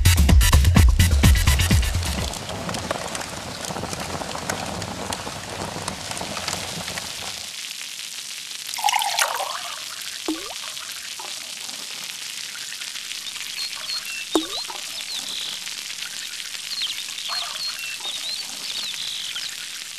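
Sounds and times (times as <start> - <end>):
rain hissing and pattering: 0.0 - 19.9.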